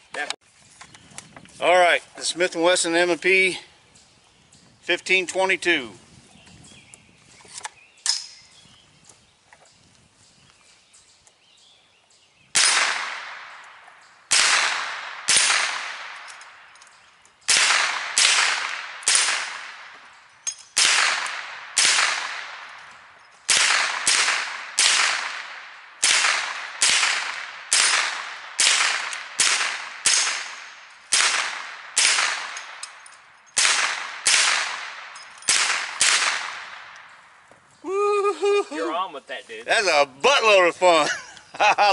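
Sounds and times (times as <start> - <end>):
rifle shots echoing: 12.5 - 16.8, 17.4 - 20.1, 20.7 - 37.1.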